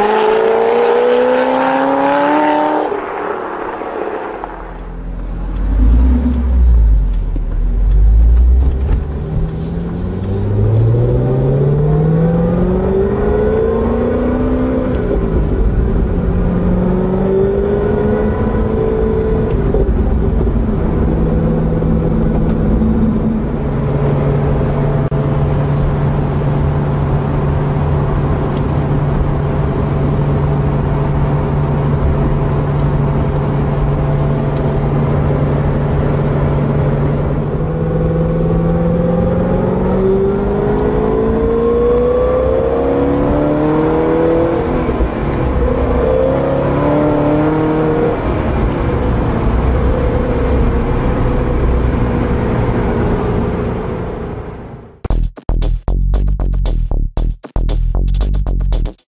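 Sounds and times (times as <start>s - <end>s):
car engine accelerating through gears: 0.0s - 55.0s.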